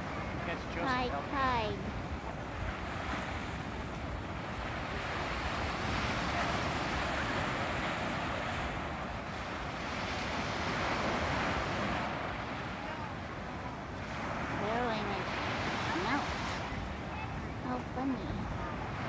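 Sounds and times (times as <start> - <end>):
surf breaking on beach: 0.0 - 19.0
wind rumbling on microphone: 0.0 - 19.0.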